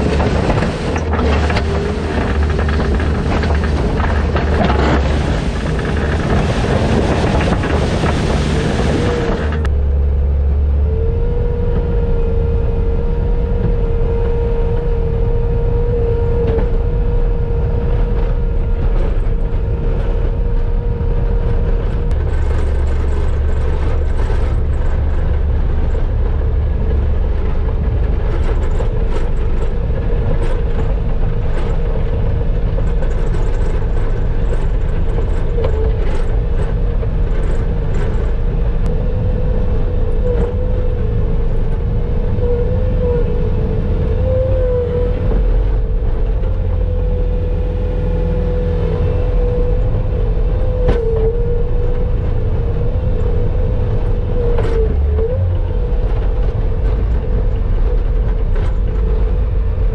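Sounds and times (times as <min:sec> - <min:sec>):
clicks and knocks: 0:00.0 - 0:09.7
skid steer engine running: 0:00.0 - 0:59.9
steady whine: 0:00.0 - 0:59.9.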